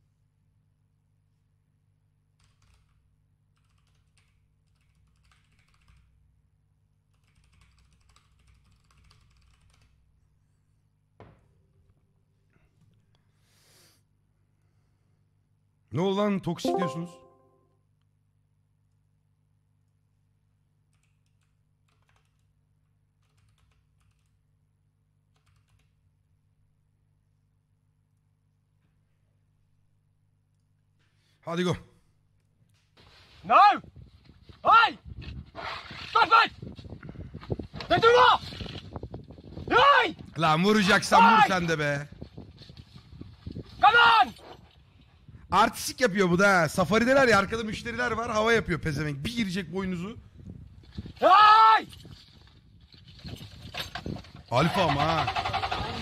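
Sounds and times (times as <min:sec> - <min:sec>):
faint keyboard typing: 0:02.3 - 0:06.3, 0:07.0 - 0:10.2, 0:20.8 - 0:24.5, 0:25.2 - 0:26.0.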